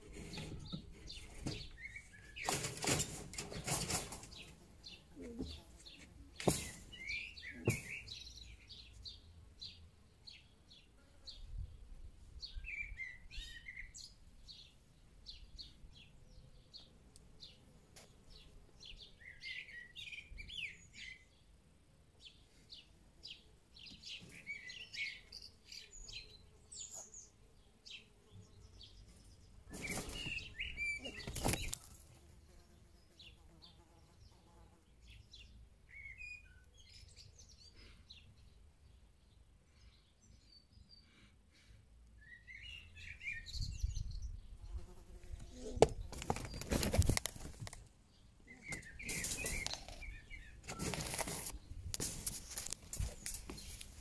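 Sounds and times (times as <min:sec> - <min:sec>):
birds chirping: 0:00.0 - 0:11.4, 0:22.2 - 0:33.4, 0:42.2 - 0:54.0.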